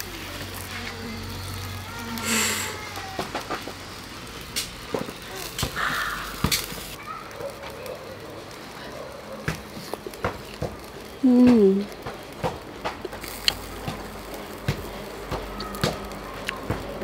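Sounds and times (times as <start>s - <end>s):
person humming mmm: 11.2s - 11.9s.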